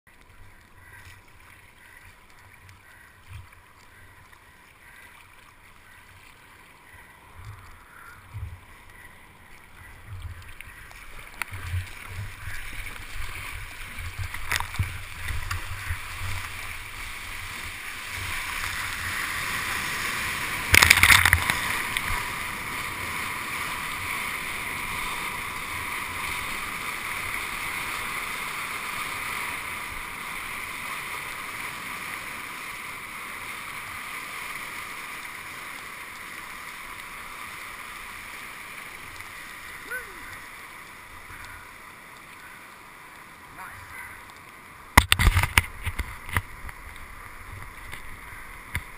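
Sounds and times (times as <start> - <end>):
sea water splashing: 0.1 - 48.9
water thumps and slaps: 11.4 - 16.5, 45.0 - 46.7.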